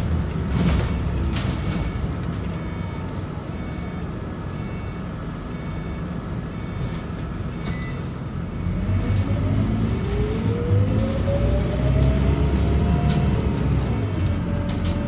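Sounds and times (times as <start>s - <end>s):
diesel bus engine idling: 0.0s - 11.7s.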